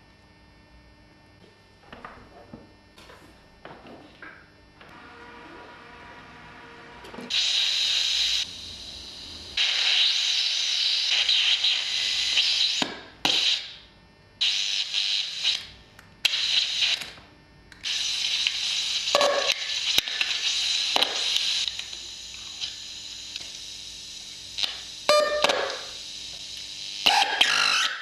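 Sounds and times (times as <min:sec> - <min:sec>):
walkie-talkie hissing static: 0:17.9 - 0:23.6.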